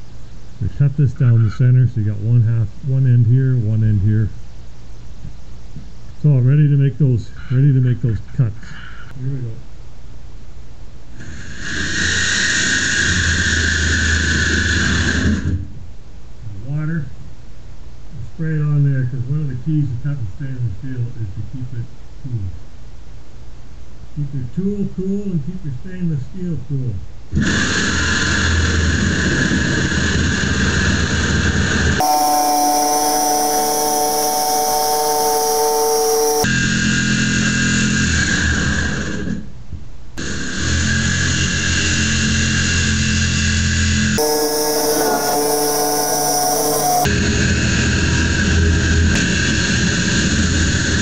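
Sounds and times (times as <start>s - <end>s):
power tool cutting steel sheet: 32.0s - 38.2s, 44.2s - 51.0s.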